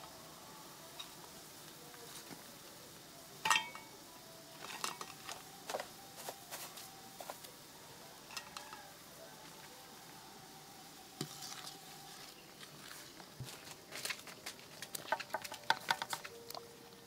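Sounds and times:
metal ladle clinking on pan: 3.4s - 3.9s.

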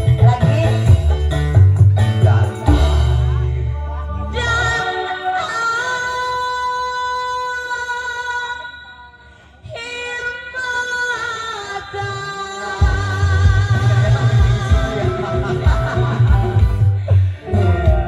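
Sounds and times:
drums: 0.0s - 4.9s, 12.5s - 18.0s
heavy bass line: 0.0s - 5.0s, 12.8s - 18.0s
live band music: 0.0s - 5.6s, 12.0s - 18.0s.

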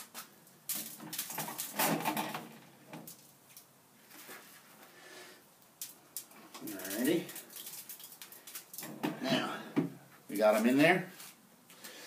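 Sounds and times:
wire racks clinking and rattling: 0.7s - 3.4s, 6.2s - 9.4s.

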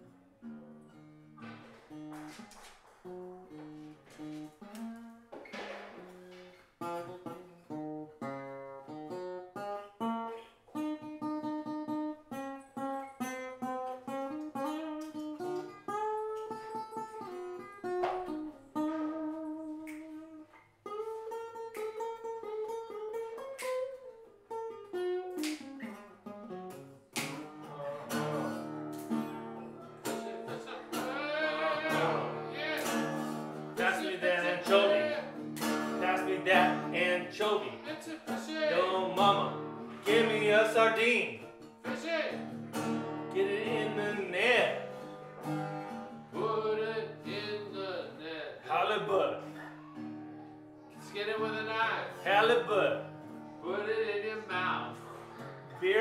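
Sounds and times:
acoustic guitar playing: 0.0s - 56.0s.

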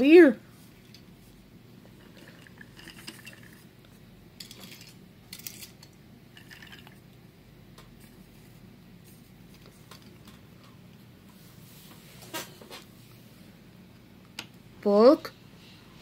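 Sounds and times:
toy trains clicking and scraping: 2.0s - 3.7s, 4.4s - 7.0s.

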